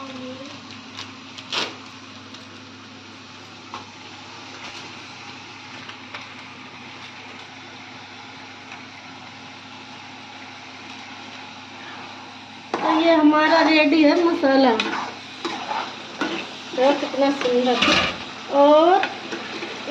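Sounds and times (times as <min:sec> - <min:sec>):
food sizzling in a pan: 0:07.0 - 0:19.9.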